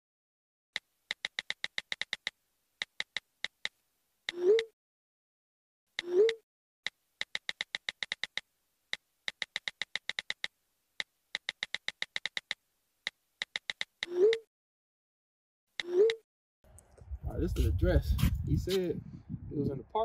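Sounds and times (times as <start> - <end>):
phone keyboard clicks: 0.8 - 4.4, 7.2 - 8.4, 9.3 - 10.5, 11.4 - 12.6, 13.4 - 14.4.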